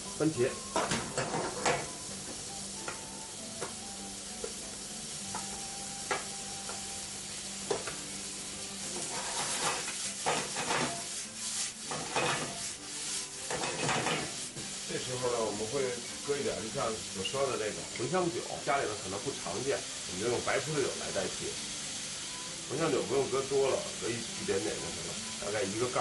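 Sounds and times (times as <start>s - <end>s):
vegetables sizzling in a pan: 0.0s - 26.0s
swishing of pan tossing: 9.0s - 15.4s.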